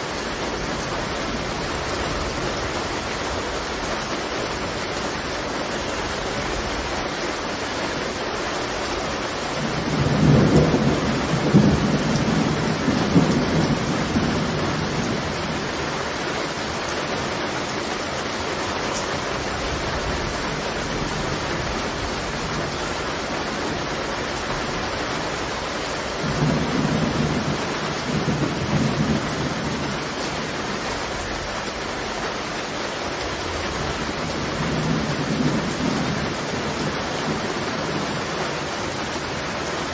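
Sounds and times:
heavy rain: 0.0 - 39.9
rolling thunder: 9.6 - 15.9, 24.4 - 31.5.

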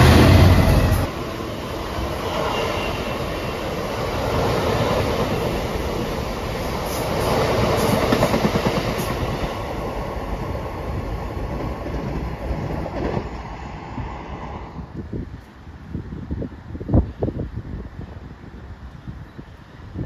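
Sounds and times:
freight train rumbling past: 0.0 - 18.6.

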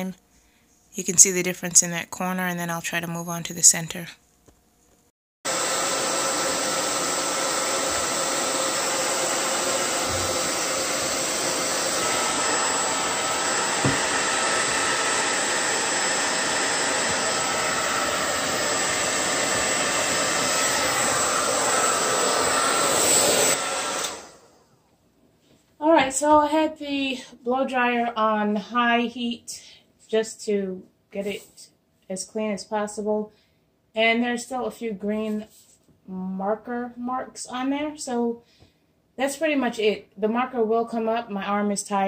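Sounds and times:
hair dryer blowing: 5.5 - 24.7.

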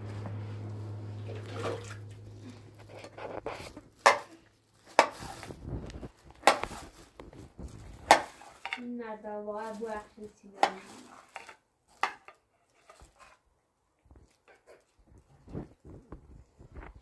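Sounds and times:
low hum: 0.0 - 4.0
rustling: 0.0 - 13.4
objects knocking and clattering: 2.8 - 9.0, 10.6 - 13.2.

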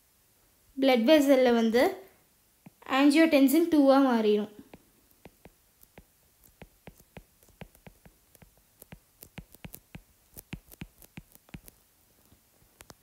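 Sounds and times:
stylus tapping tablet screen: 4.6 - 13.0.

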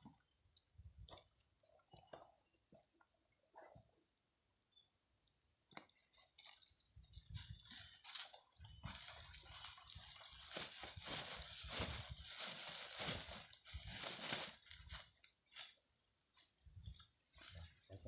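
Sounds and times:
grass and leaves rustling: 6.1 - 18.0.

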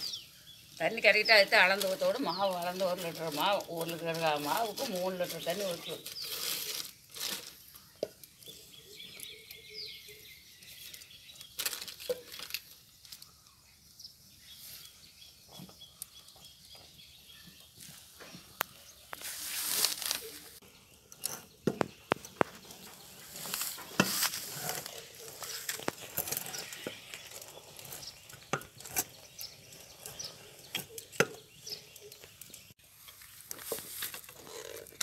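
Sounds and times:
knocks and scrapes on a pot: 21.1 - 32.0
stick stirring paste in a pot: 21.1 - 32.7.

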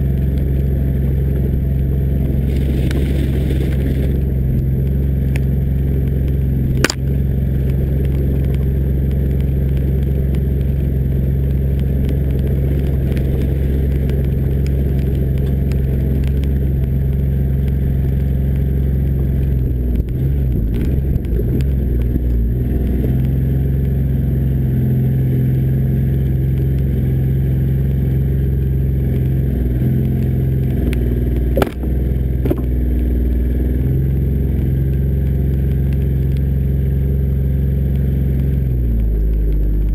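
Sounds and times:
diesel engine droning: 0.0 - 39.9
sharp knocks: 31.6 - 32.7.

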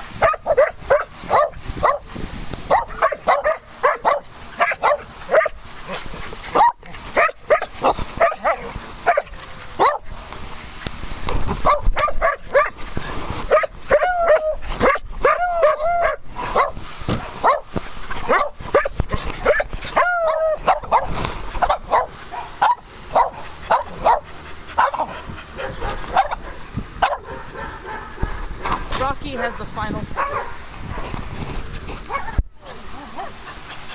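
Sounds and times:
dogs barking: 0.2 - 2.0, 2.7 - 10.1, 11.6 - 12.8, 13.5 - 28.7, 29.3 - 31.2, 32.0 - 32.4, 33.0 - 33.9.

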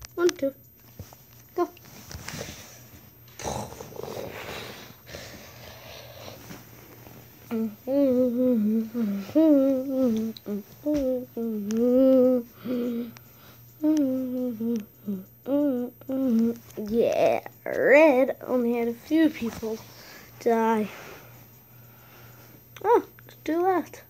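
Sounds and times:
person humming a tune: 7.5 - 17.9.

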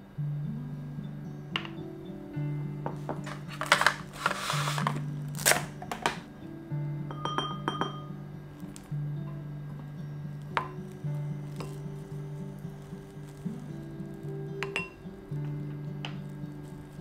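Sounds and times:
soft background music: 0.0 - 17.0
plastic wrap rustling and snapping: 3.0 - 6.3, 10.4 - 14.8, 15.4 - 17.0
glass dish clinking on counter: 7.1 - 8.1, 14.6 - 15.0.

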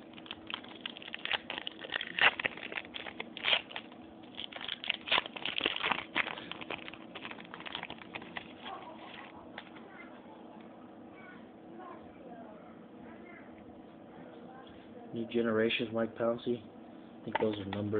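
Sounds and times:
foil wrapper crinkling and tearing: 0.0 - 9.3.

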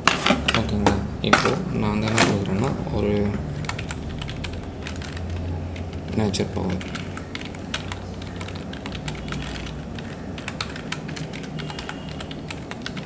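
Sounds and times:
low steady hum: 0.0 - 13.0
keyboard key clicks: 3.6 - 13.0.

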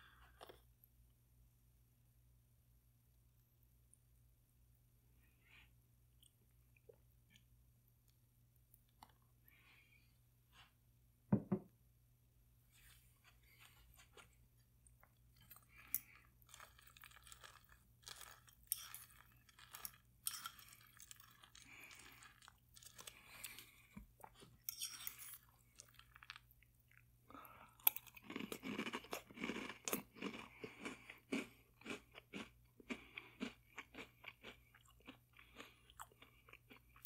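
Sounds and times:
fork clinking and scraping bowl: 24.6 - 25.5.

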